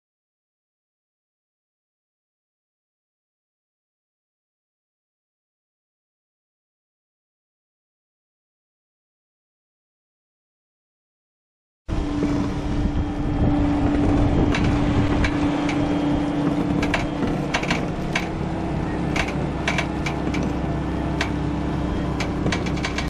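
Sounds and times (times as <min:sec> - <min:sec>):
skid steer engine hum: 0:11.9 - 0:23.0
sharp clicks and knocks: 0:13.8 - 0:23.0.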